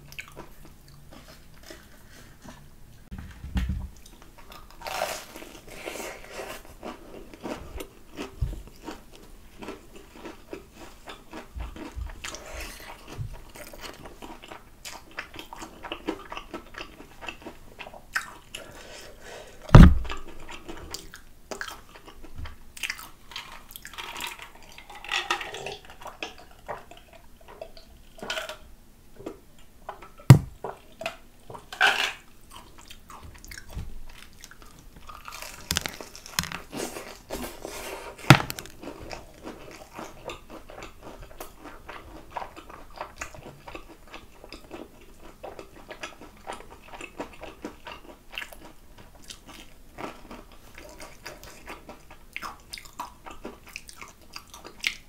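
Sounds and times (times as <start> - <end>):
chewing crispy fried chicken: 0.0 - 2.7, 4.0 - 28.6, 32.2 - 55.0
sharp knocks: 19.8 - 20.1.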